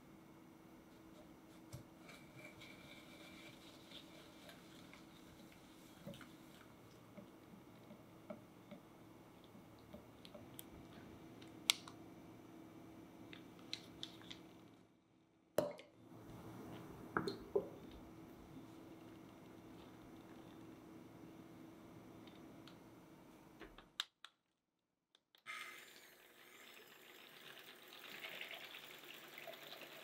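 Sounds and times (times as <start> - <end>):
whisk stirring in glass bowl: 2.0 - 6.7.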